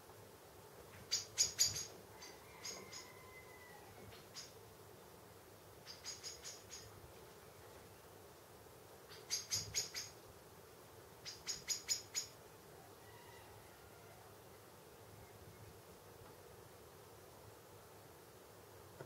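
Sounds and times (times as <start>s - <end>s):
small animal high chirps: 1.1s - 3.1s, 5.8s - 6.9s, 9.1s - 10.2s, 11.2s - 12.3s.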